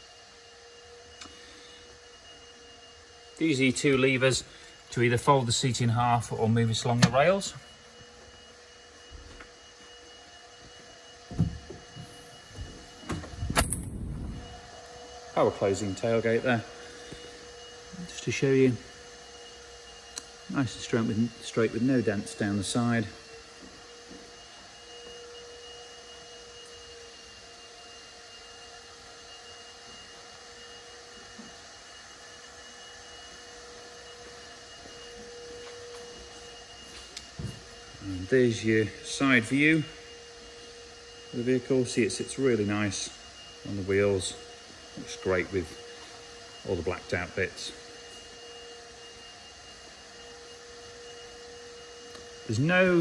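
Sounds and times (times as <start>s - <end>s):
faint electrical whine: 0.0s - 53.0s
power latch whirring: 6.8s - 7.3s, 11.3s - 14.7s.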